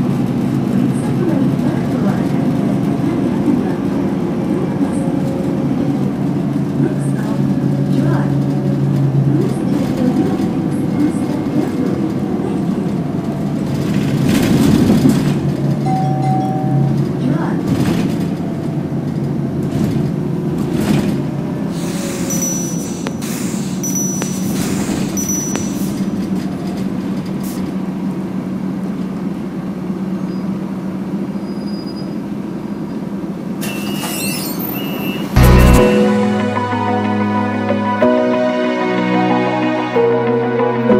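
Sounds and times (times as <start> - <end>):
road noise: 0.0 - 15.8, 16.9 - 31.4
bus engine drone: 0.0 - 31.4, 32.2 - 40.9
air hiss: 21.8 - 26.0.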